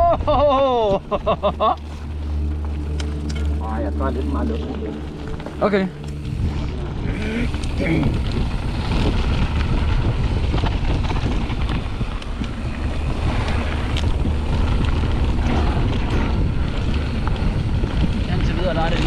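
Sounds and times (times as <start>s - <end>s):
tyres rumbling on gravel: 0.0s - 19.0s
bike clicks and rattles: 5.0s - 19.0s
wind noise on microphone: 6.0s - 19.0s.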